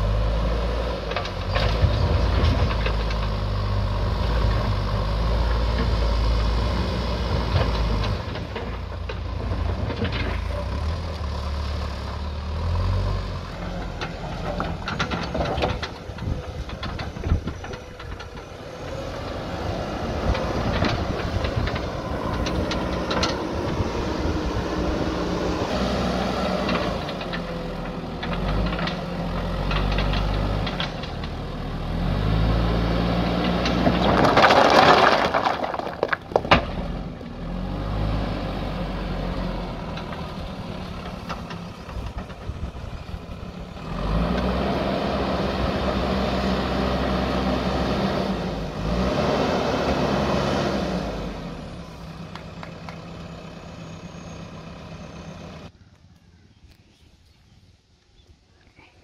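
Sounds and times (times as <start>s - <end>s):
diesel engine revving: 0.0s - 55.8s
bucket cracking into stones: 33.7s - 36.8s.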